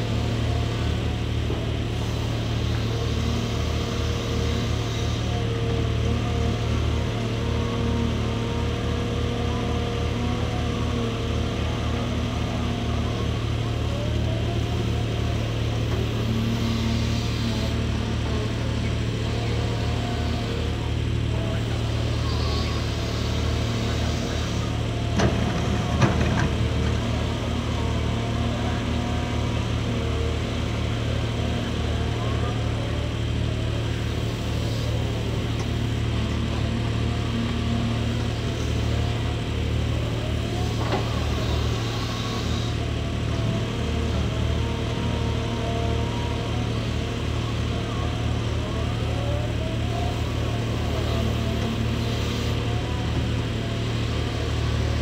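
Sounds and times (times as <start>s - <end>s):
excavator diesel engine: 0.0s - 55.0s
hydraulic whine: 0.0s - 55.0s.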